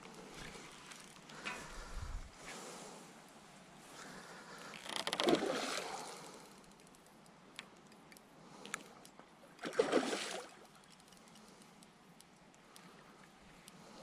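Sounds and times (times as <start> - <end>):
fish splashing at the surface: 5.2 - 6.3, 9.6 - 10.8
faint ticks: 6.2 - 9.3, 10.6 - 14.0.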